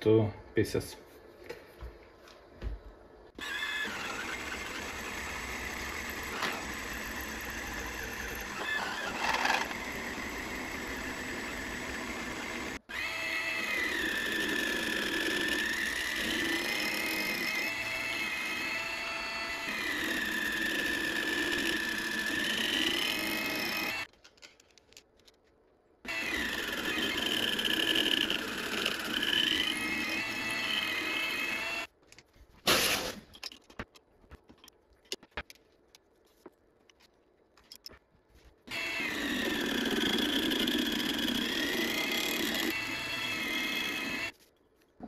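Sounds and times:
mini mill cutting metal: 3.4s - 24.1s, 26.1s - 31.9s, 38.7s - 44.3s.

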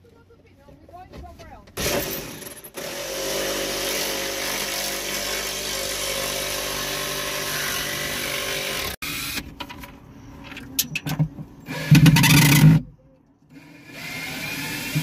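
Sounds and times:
jigsaw sawing wood: 1.8s - 9.0s, 13.8s - 15.0s.

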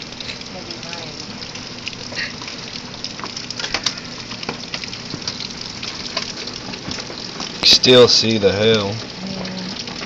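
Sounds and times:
heavy rain: 0.0s - 10.0s.

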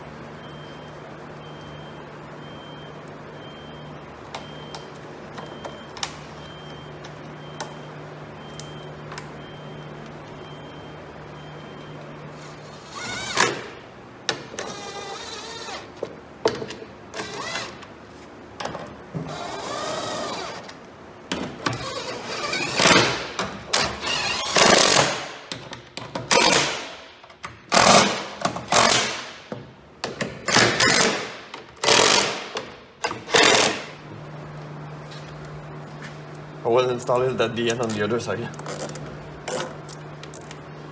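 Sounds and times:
cordless drill bursts: 12.7s - 13.5s, 14.6s - 15.9s, 19.3s - 20.6s.

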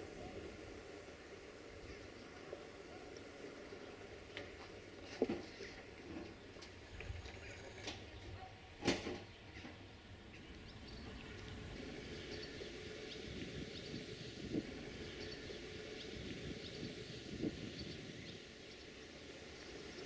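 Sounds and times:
faint high chirps: 10.5s - 20.0s.

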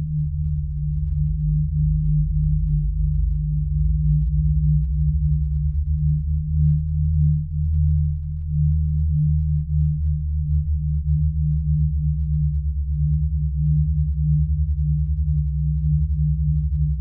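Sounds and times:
synthesized humming drone: 0.0s - 17.0s.

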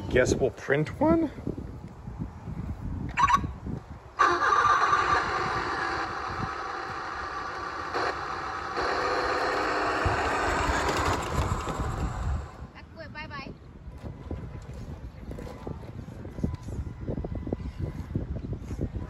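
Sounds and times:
toy truck motor whine: 4.2s - 12.6s.

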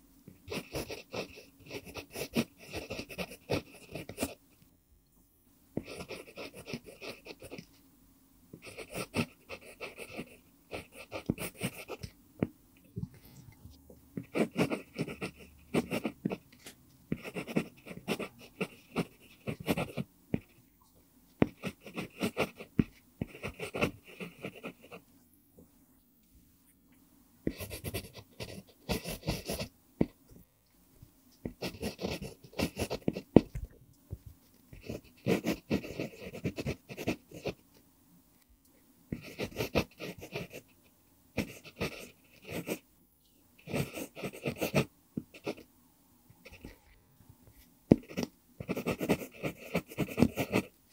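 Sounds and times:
pencil scratching on paper: 0.5s - 4.4s, 5.8s - 7.6s, 8.6s - 12.1s, 14.2s - 20.6s, 21.4s - 25.0s, 27.5s - 30.2s, 31.4s - 33.5s, 34.5s - 37.6s, 39.1s - 40.8s, 41.4s - 42.8s, 43.6s - 45.7s, 47.9s - 50.8s.

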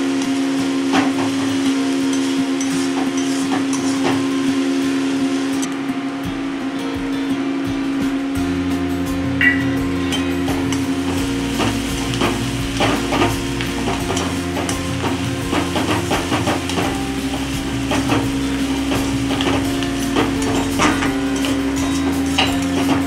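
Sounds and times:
onions sizzling in oil: 0.0s - 5.7s, 9.4s - 23.0s
metal spatula scraping a pan: 0.9s - 4.2s, 10.0s - 23.0s.

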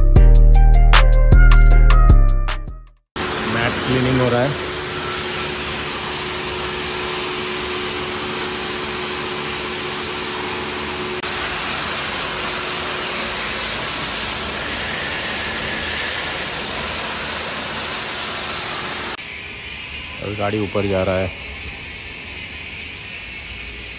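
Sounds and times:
pressure washer spraying: 3.2s - 19.2s.

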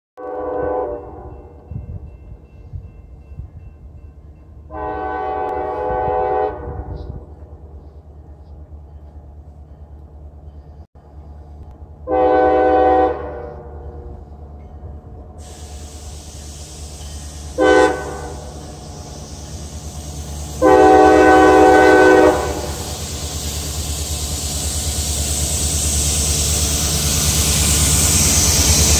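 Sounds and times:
locomotive air horn blasts: 0.2s - 1.5s, 4.7s - 7.2s, 12.0s - 13.8s, 17.4s - 18.8s, 20.4s - 23.0s
steady hiss: 15.4s - 28.9s.

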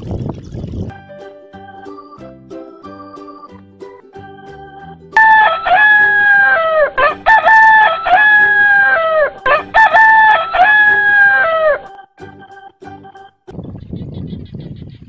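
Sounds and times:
rooster crowing: 5.2s - 11.9s.

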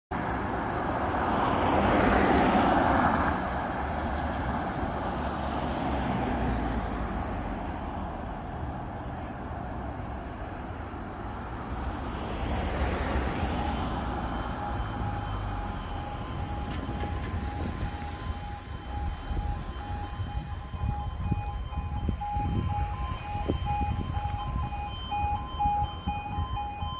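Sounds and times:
road traffic passing: 0.1s - 26.9s
pulsing electronic warning alarm: 12.7s - 26.9s.

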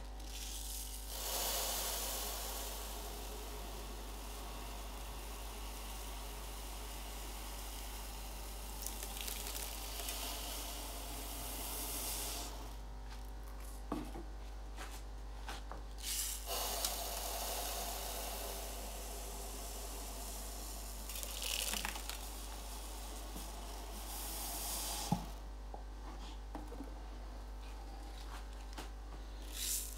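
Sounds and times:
water running into aquarium: 1.1s - 12.6s, 16.5s - 24.9s.

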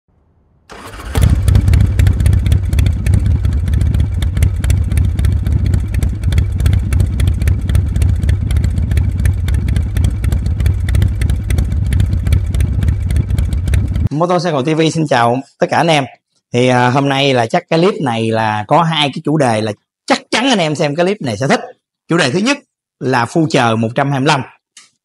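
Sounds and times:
motorcycle engine rumbling: 0.7s - 14.1s.

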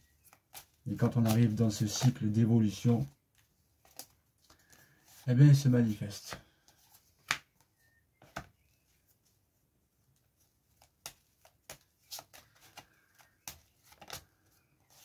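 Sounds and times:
cards clicking and slapping: 3.3s - 4.9s, 6.2s - 8.5s, 10.7s - 15.0s.

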